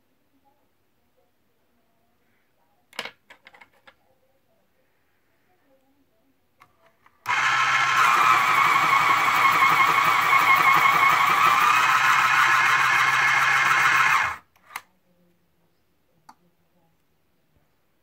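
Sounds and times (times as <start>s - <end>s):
electric pencil sharpener: 7.2s - 14.4s.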